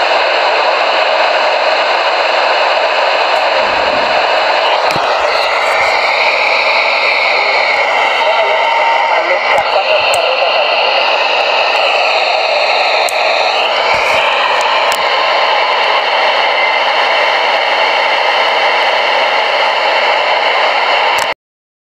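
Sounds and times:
radio static hiss: 3.2s - 15.2s.

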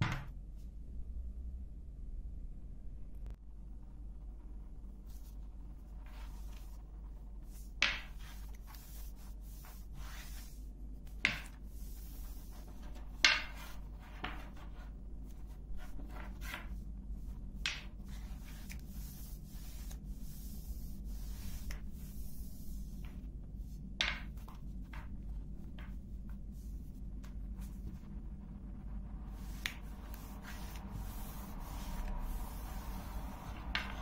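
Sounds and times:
dough sheet swishing: 5.0s - 28.2s, 29.2s - 34.0s
rolling pin rolling over dough: 7.4s - 28.1s, 29.3s - 34.0s.

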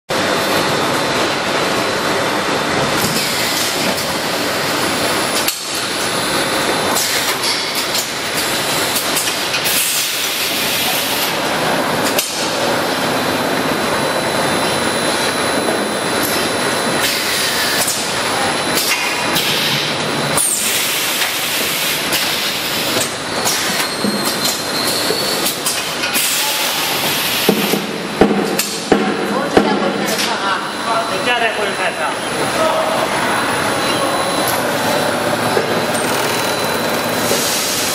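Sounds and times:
machine mechanical din: 33.6s - 37.9s.

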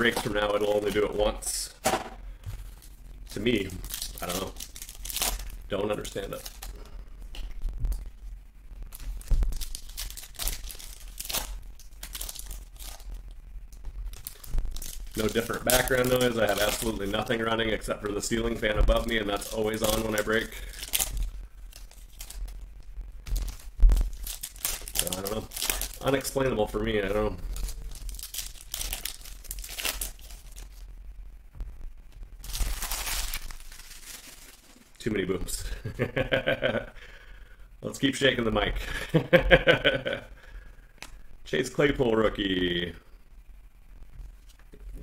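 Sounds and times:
foil wrappers crinkling and tearing: 0.0s - 1.7s, 2.4s - 30.9s, 32.4s - 35.8s.

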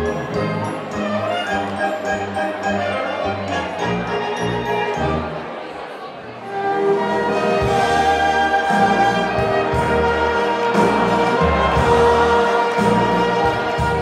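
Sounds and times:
violin playing: 0.0s - 5.7s
wind band playing: 0.0s - 14.0s.

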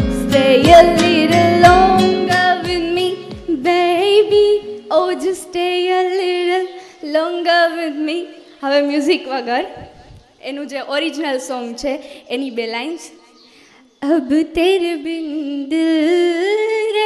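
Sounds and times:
backing music with low beat: 0.0s - 3.8s
woman singing with vibrato: 0.0s - 10.7s, 14.0s - 17.0s.

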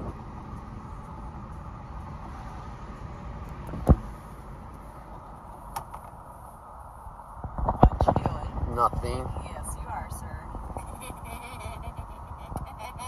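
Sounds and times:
car cabin rumble: 0.0s - 13.0s.

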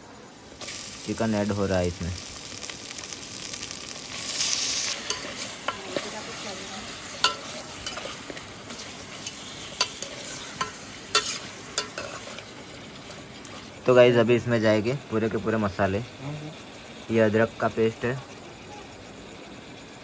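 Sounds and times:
chicken sizzling in hot oil: 0.4s - 15.8s
metal spoon clinking against pot: 7.2s - 8.2s.

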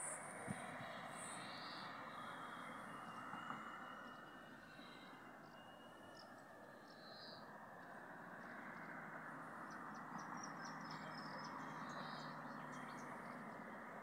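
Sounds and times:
faint bird chirps: 0.1s - 9.0s.

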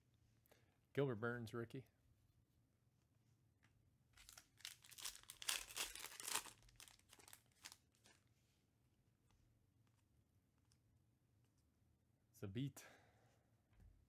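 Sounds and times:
foil wrapper tearing and crinkling: 4.2s - 7.8s.

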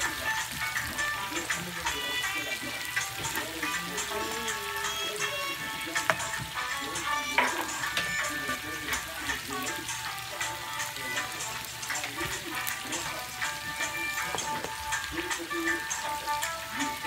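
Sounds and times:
greens sizzling in a wok: 0.0s - 17.0s
reggae music: 0.0s - 17.0s
wooden spatula stirring: 3.2s - 9.0s.

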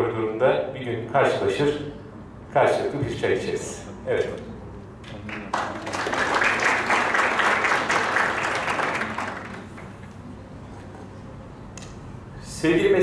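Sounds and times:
audience applauding: 5.1s - 10.2s.

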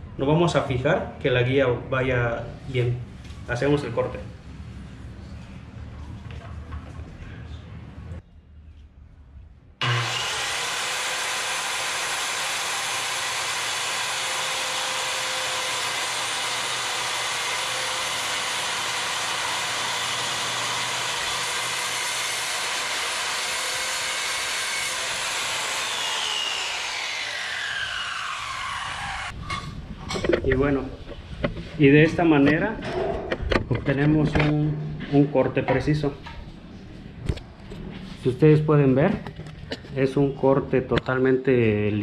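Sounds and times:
saw blade winding down: 9.8s - 29.3s
circular saw cutting wood: 9.8s - 29.4s.

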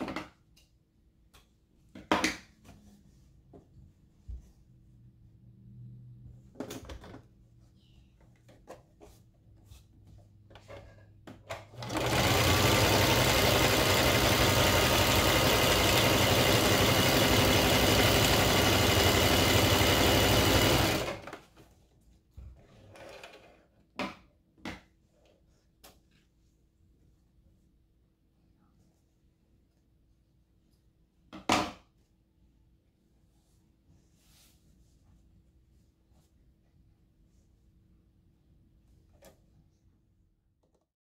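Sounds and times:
sewing machine running: 11.7s - 21.4s.

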